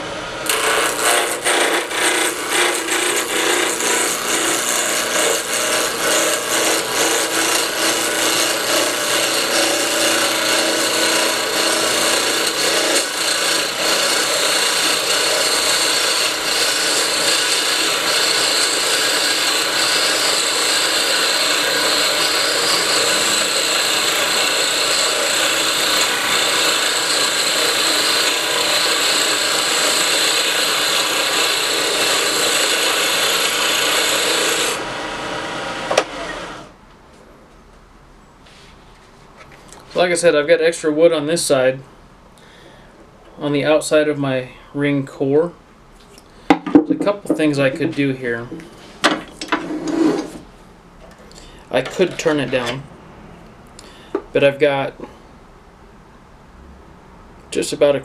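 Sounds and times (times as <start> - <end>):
lathe tool scraping wood: 0.0 - 36.7, 47.0 - 50.5, 51.4 - 52.8.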